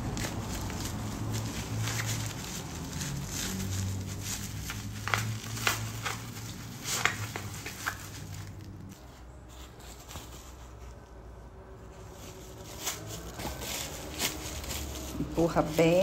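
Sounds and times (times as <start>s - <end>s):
cotton fabric rustling: 0.0s - 16.0s.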